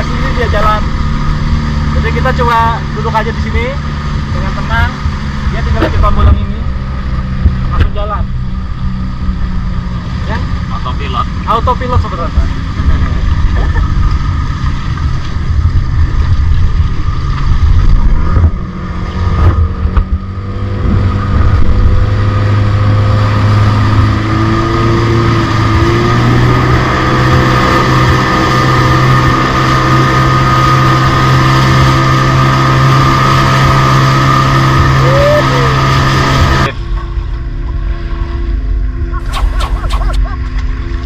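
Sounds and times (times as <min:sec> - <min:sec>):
boat motor running: 0:00.0 - 0:41.0
wind buffeting microphone: 0:11.3 - 0:32.0.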